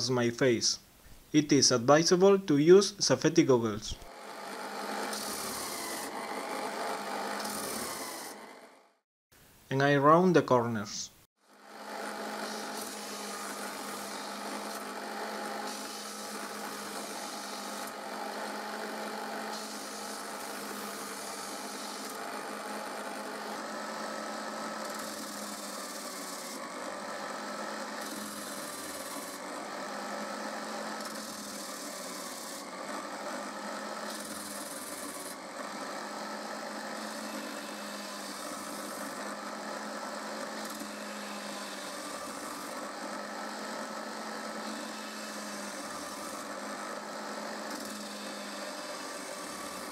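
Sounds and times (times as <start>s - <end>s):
drill motor running: 3.8s - 9.0s, 11.4s - 49.9s.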